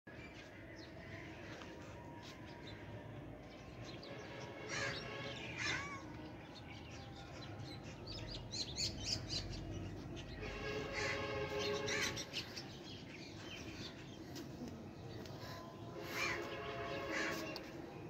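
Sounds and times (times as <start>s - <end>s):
birds chirping: 0.1s - 18.0s
harsh crow-like calls: 4.6s - 6.1s, 10.9s - 12.3s, 16.1s - 17.6s.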